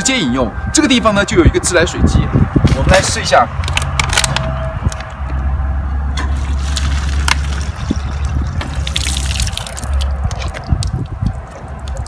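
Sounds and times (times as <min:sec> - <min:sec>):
small clicks and splashes: 0:06.3 - 0:12.0.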